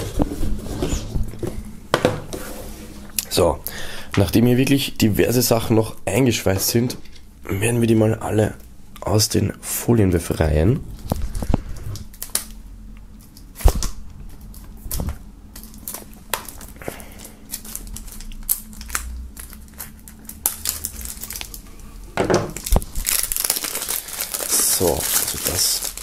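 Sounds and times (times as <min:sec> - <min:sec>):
plastic film crinkling: 0:11.0 - 0:26.0
knife slitting plastic film: 0:17.6 - 0:21.6, 0:22.6 - 0:26.0.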